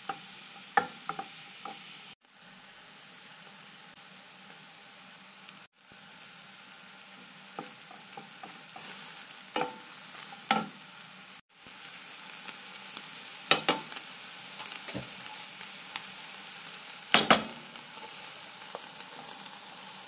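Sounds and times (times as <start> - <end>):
meat sizzling in a frying pan: 0.0 - 20.0
wooden spoon knocking pan: 17.2 - 17.6.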